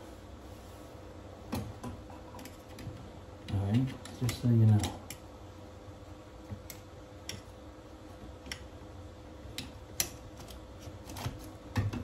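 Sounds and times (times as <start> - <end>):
faint steady hum: 0.0 - 12.0
wallpaper clicks and snips: 9.5 - 12.0.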